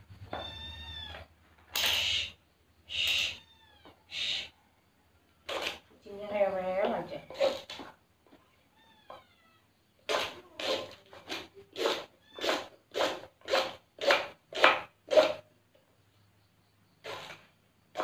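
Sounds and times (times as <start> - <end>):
knife chopping on wooden board: 10.1 - 15.4.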